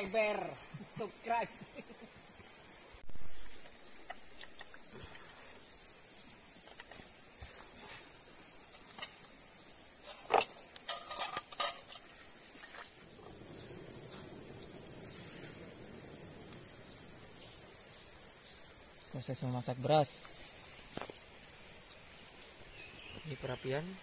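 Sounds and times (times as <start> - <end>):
high-pitched insect chorus: 0.0 - 24.0.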